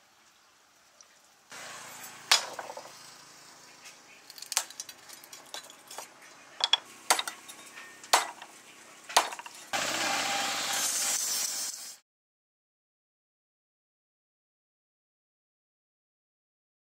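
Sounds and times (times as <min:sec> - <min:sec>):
cleaver chopping wood: 0:08.1 - 0:08.5, 0:09.1 - 0:09.5.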